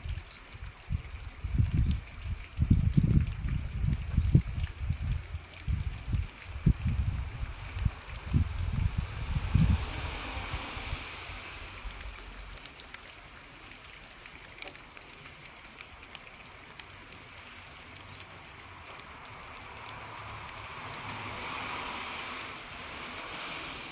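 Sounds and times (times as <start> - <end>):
steady outdoor hiss: 5.0 - 23.9.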